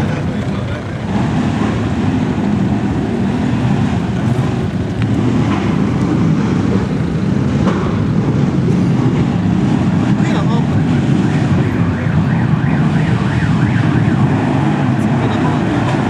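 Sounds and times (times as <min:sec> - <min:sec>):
motorcycle engines droning: 0:00.0 - 0:16.0.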